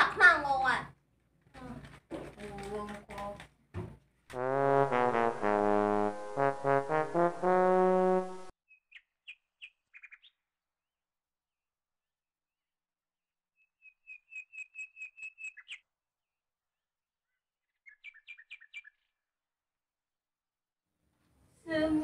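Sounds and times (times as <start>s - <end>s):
bird chirping: 8.7s - 10.4s, 13.6s - 15.9s, 17.3s - 19.2s.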